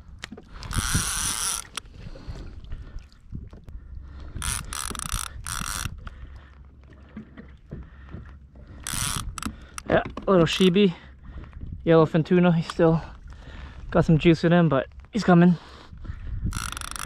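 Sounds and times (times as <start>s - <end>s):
wind and water rumble: 0.0s - 17.0s
fishing reel drag buzzing: 0.6s - 1.8s, 4.3s - 6.0s, 8.8s - 9.9s, 16.5s - 17.0s.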